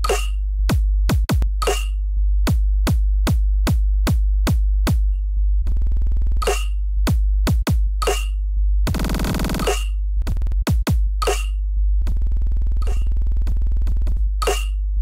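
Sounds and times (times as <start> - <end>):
buzzing drum roll: 8.9 - 9.8.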